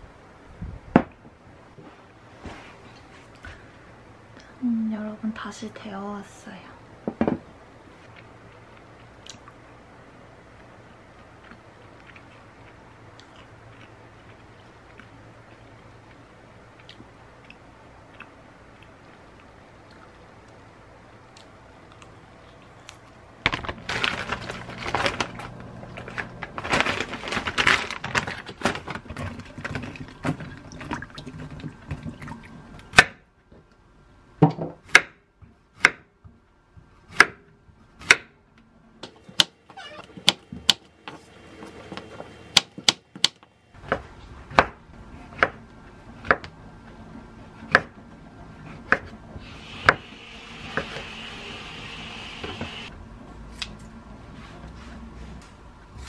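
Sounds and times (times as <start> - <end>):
chewing salad: 11.2 - 20.6.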